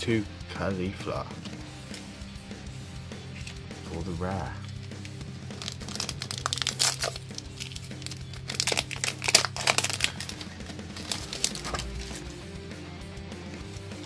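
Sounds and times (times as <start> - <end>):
background music: 0.0 - 14.0
foil wrapper crinkling and tearing: 4.6 - 12.3.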